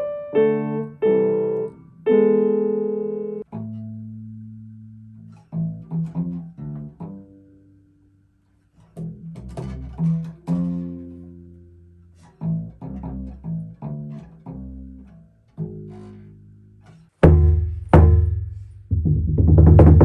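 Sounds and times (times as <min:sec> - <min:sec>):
acoustic bass guitar plucked: 0:03.5 - 0:07.9, 0:08.8 - 0:20.0.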